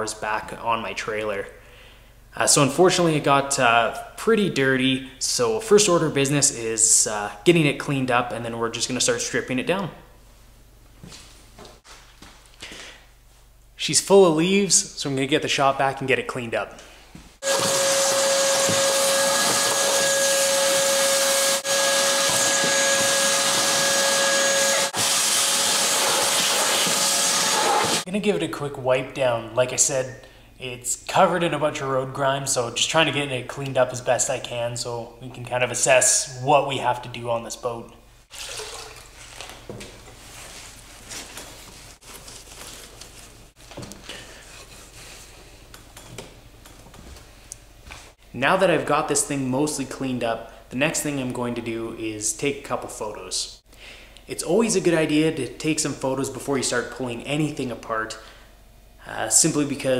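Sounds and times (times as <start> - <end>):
shop vacuum whining: 17.4 - 28.1.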